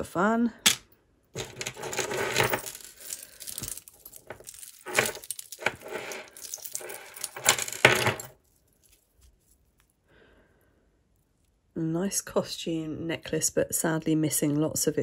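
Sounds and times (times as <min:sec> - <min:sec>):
jewellery chains clinking and jangling: 0:01.4 - 0:09.1.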